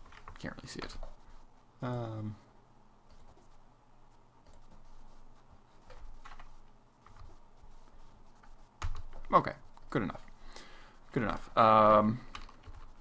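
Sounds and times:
computer keyboard keystrokes: 12.3s - 12.9s.

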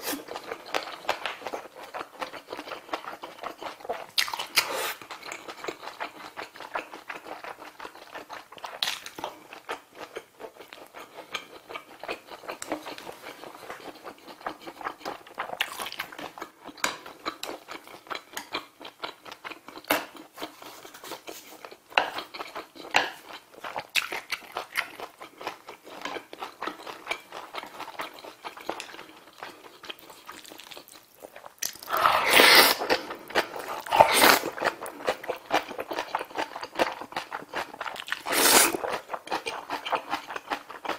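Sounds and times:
chewing with wet mouth clicks: 0.3s - 20.6s, 21.6s - 32.2s, 32.8s - 40.9s
noodles being slurped: 31.6s - 35.5s, 37.9s - 39.1s.

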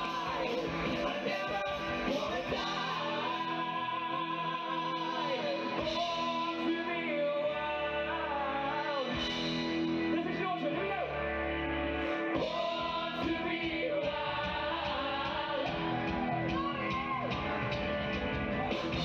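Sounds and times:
men singing: 0.0s - 9.5s, 12.4s - 16.2s
live band playing: 0.0s - 19.0s.

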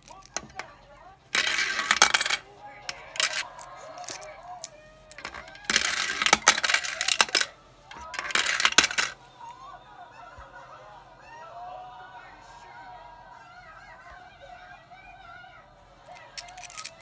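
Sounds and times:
coins rattling in plastic bank: 0.0s - 0.7s, 1.3s - 9.2s, 16.1s - 17.0s.

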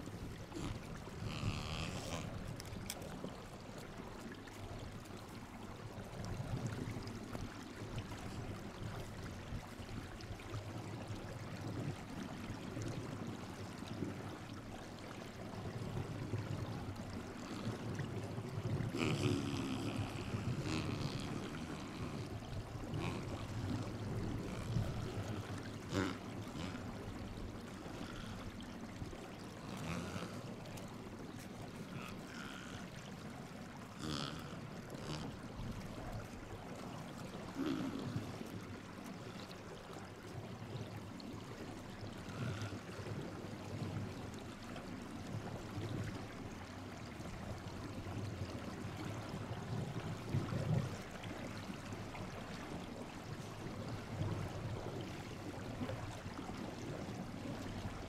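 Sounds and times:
seal strained vocal sound: 0.5s - 2.6s, 18.9s - 26.9s, 29.6s - 30.6s, 34.0s - 35.4s, 37.5s - 38.4s.

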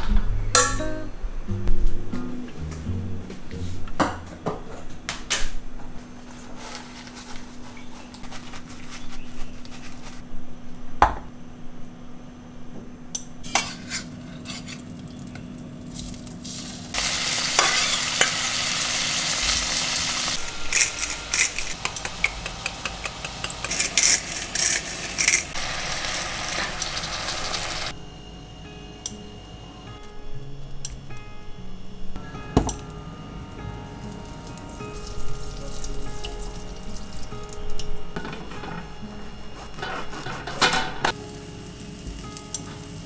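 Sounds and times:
wooden spatula scraping a pan: 13.5s - 14.9s, 38.3s - 40.9s
fish sizzling in a hot pan: 16.1s - 27.9s
kitchen clicks and knocks: 20.8s - 25.6s, 39.8s - 41.1s.

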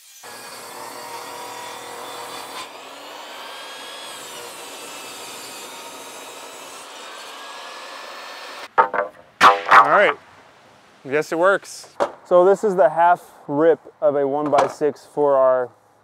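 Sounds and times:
table saw ripping a board: 0.0s - 8.7s.

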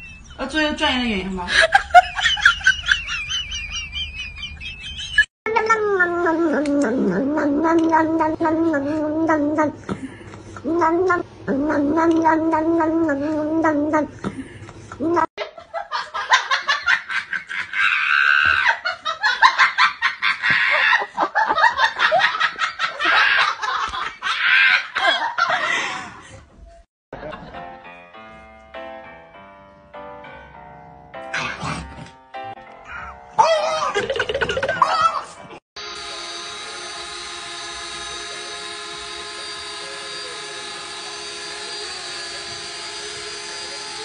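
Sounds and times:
person laughing: 1.5s - 5.3s, 16.0s - 26.2s, 32.9s - 35.6s
toy drone rotors buzzing: 35.8s - 44.0s.

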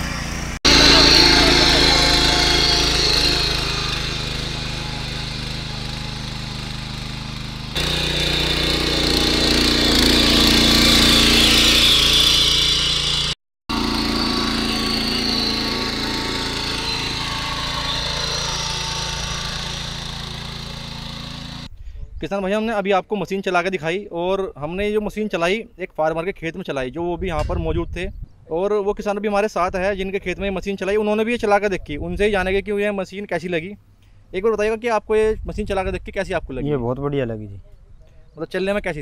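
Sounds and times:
tiller petrol engine running: 0.0s - 21.7s.

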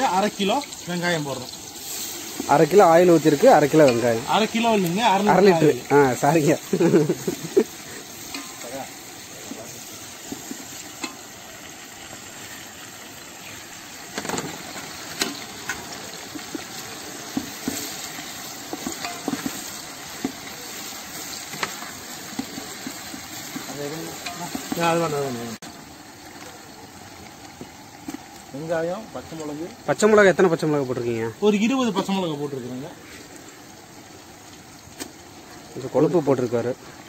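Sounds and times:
onions sizzling in oil: 0.0s - 37.0s
spatula scraping and knocking pot: 14.2s - 20.5s.

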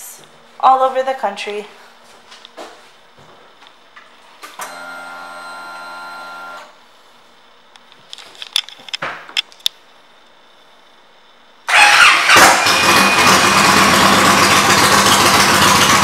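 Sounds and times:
fuel pump buzzing: 11.7s - 16.0s.

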